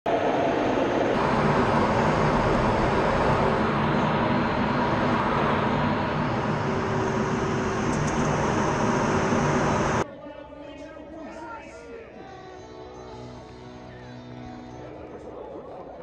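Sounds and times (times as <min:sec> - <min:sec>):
jet engine and airflow rush: 0:00.0 - 0:10.1.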